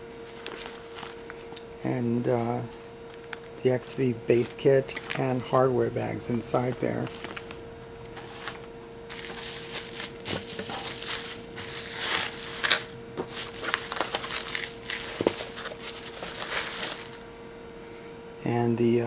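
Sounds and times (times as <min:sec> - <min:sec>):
plastic packaging crinkling: 0:00.2 - 0:01.6, 0:06.3 - 0:17.3.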